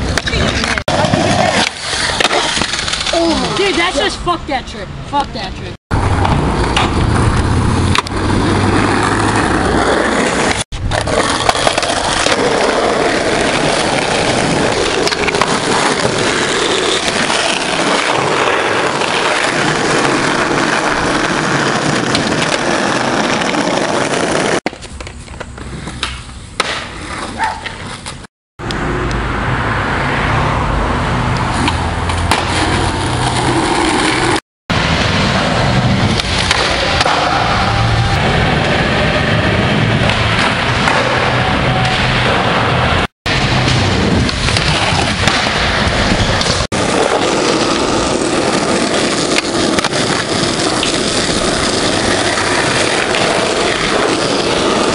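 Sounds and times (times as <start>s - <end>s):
skateboard wheels rolling: 0.0s - 4.6s, 5.9s - 29.0s, 31.3s - 54.9s
skateboard clacks: 40.0s - 42.7s, 43.7s - 54.9s.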